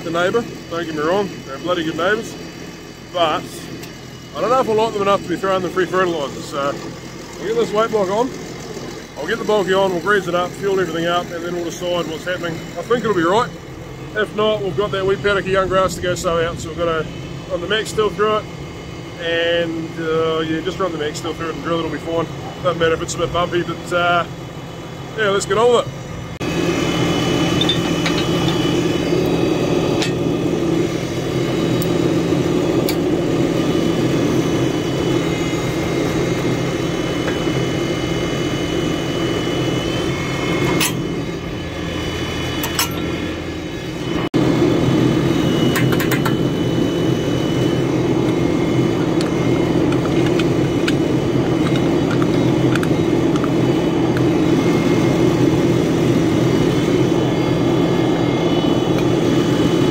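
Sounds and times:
tractor engine idling: 0:00.0 - 0:20.2.

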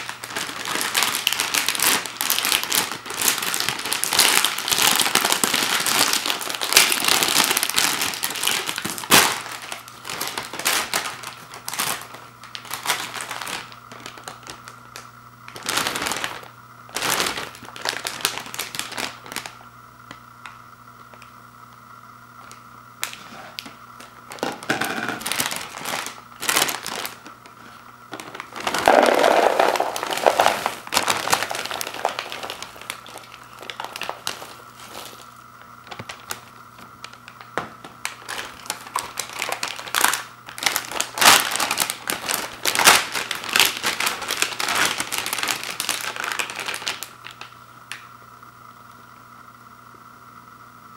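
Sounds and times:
popcorn pouring into plastic bowl: 0:00.0 - 0:14.7, 0:24.3 - 0:27.4, 0:28.2 - 0:36.5, 0:38.0 - 0:47.5
foil bag crinkling and rustling: 0:00.0 - 0:21.3, 0:22.4 - 0:47.6.

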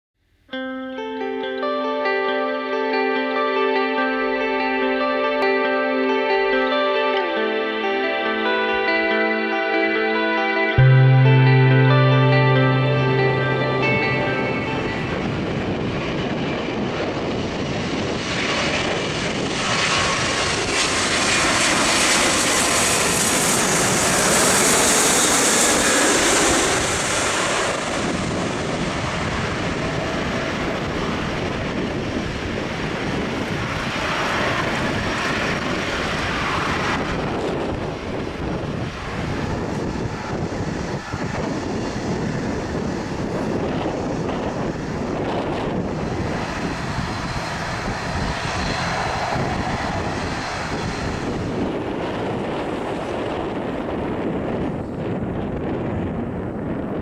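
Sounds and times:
jet engine rush: 0:15.0 - 0:55.1.

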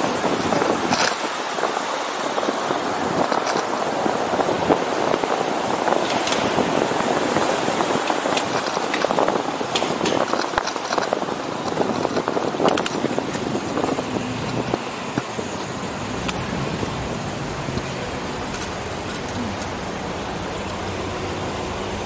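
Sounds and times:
bicycle clicks and rattles: 0:00.0 - 0:21.0
traffic: 0:00.0 - 0:22.0
tyres on asphalt: 0:00.0 - 0:22.0.

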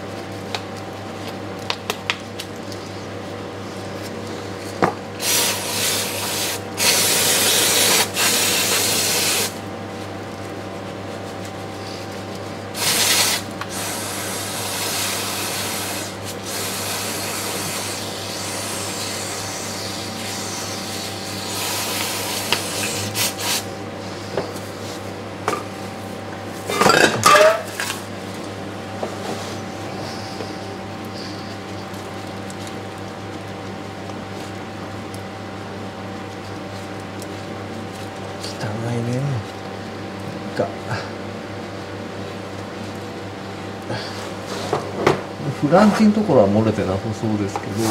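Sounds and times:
aerosol spray hissing: 0:05.2 - 0:09.6, 0:12.8 - 0:23.7.

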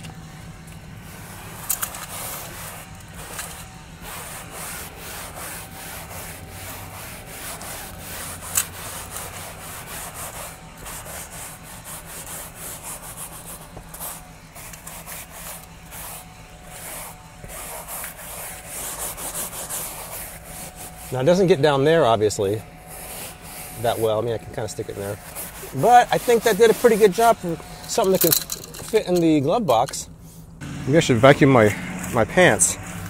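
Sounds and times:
vacuum motor whine: 0:00.0 - 0:18.7, 0:30.6 - 0:33.0
bristles rasping on fabric: 0:00.7 - 0:29.2.

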